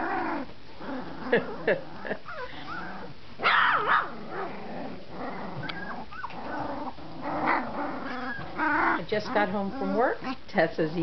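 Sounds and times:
puppies yelping and barking: 2.2 - 10.4.

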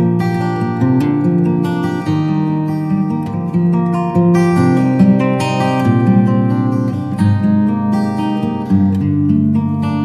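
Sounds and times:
acoustic guitar chords: 0.0 - 10.0.

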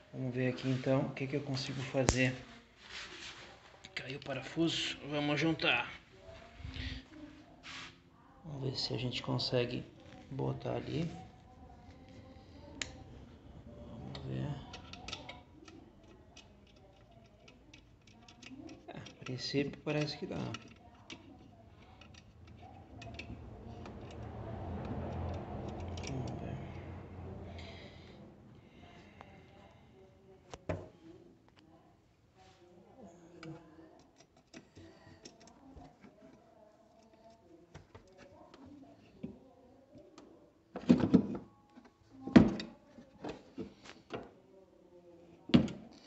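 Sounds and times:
small clicks and scrapes of bolt: 14.7 - 24.2, 34.0 - 36.3
low handling rumble: 22.3 - 30.1.

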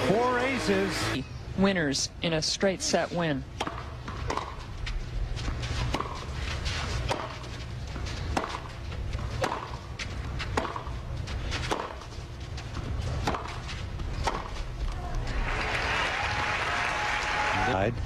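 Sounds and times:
tennis ball hits and bounces: 3.6 - 4.6, 5.7 - 6.3, 7.0 - 11.0, 11.6 - 12.2, 12.8 - 14.7
low crowd rumble: 3.9 - 18.0.

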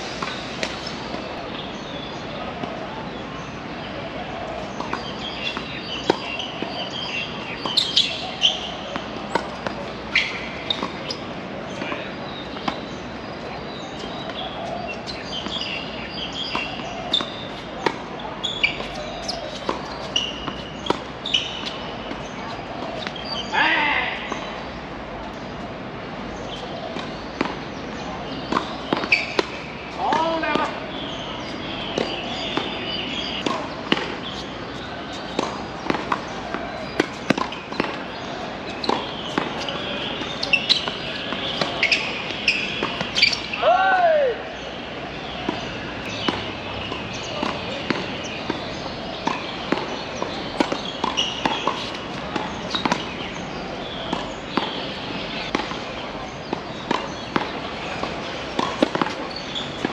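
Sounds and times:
tennis balls struck by rackets: 4.5 - 23.6, 26.5 - 43.6, 44.2 - 59.9
tennis balls bouncing on court: 4.5 - 25.5, 26.4 - 59.9.

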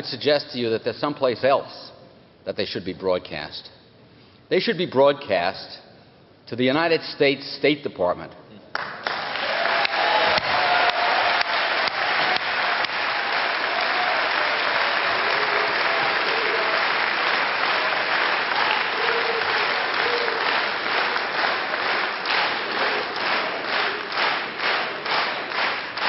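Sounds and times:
audience applauding: 8.8 - 26.0
rhythmic clapping in unison: 8.8 - 26.0.

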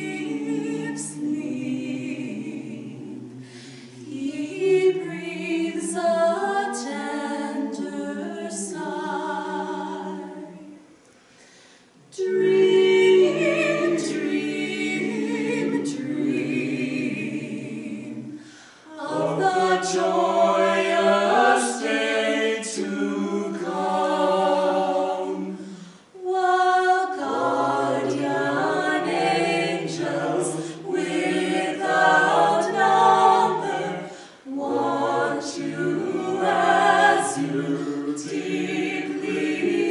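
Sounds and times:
vocal quartet singing a cappella: 0.0 - 39.9
singers breathing: 3.3 - 4.0, 11.0 - 12.1, 18.3 - 18.9, 25.6 - 26.2, 30.6 - 30.8, 34.0 - 34.5.

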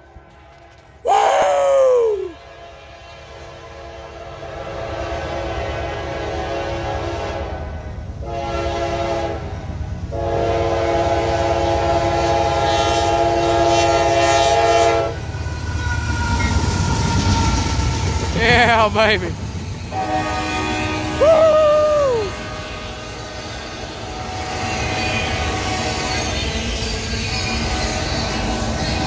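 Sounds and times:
low rumble of train: 0.0 - 29.0
locomotive air horn: 2.3 - 9.5, 10.1 - 15.2, 19.9 - 26.4, 27.2 - 29.0.

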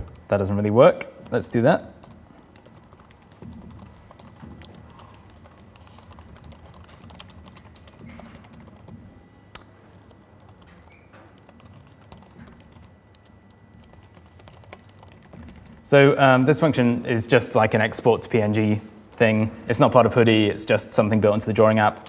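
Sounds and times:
laptop keyboard typing: 0.0 - 0.6, 1.2 - 15.9, 21.3 - 22.0.

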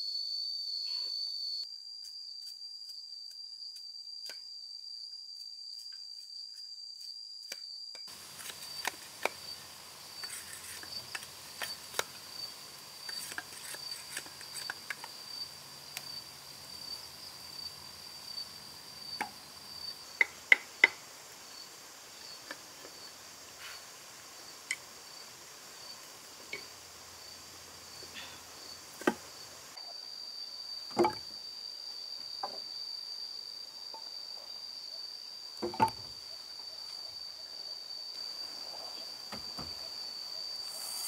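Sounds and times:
high-pitched insect drone: 0.0 - 41.0.

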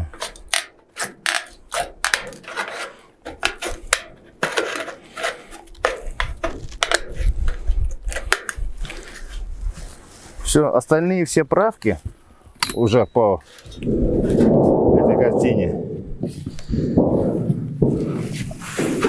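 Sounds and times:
sheet metal scraping: 13.7 - 19.0.

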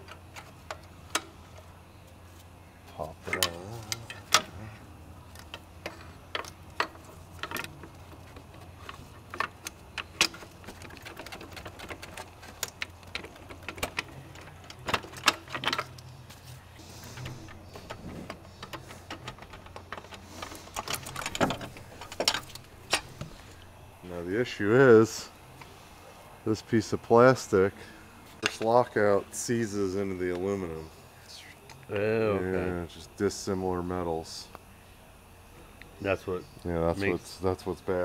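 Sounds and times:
steady low hum: 0.0 - 38.0
clicks and knocks of tools: 5.3 - 16.1, 17.1 - 23.7.

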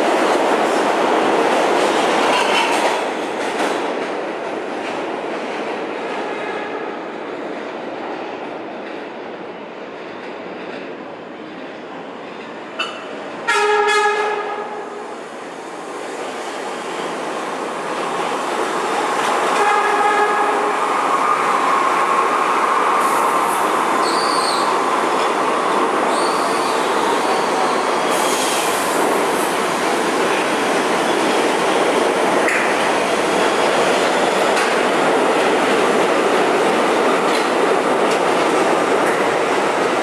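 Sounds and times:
wheels rumbling on rail: 0.0 - 40.0
train horn blast: 12.8 - 14.8, 19.6 - 20.7.

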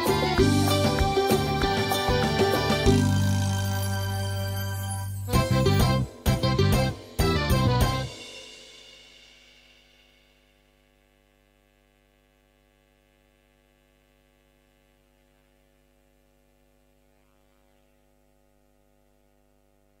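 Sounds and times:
faint electrical hum: 8.0 - 20.0.

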